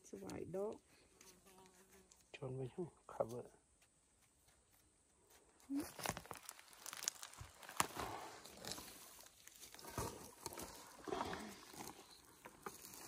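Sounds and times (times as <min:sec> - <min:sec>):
rustling and crunching of dry leaves: 0:05.7 - 0:13.0.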